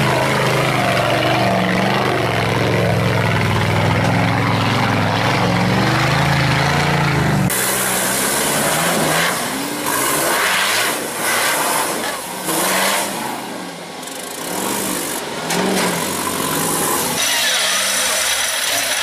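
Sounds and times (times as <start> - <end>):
tyres spinning and grit flying: 0.0 - 13.2
buggy engine revving: 0.0 - 19.0.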